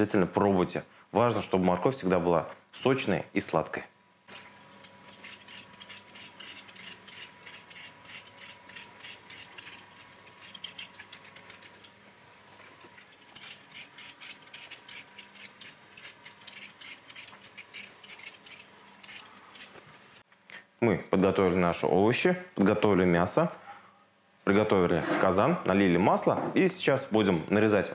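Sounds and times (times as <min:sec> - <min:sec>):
peeler scraping potato skin: 0:04.4 - 0:12.0, 0:12.9 - 0:19.9.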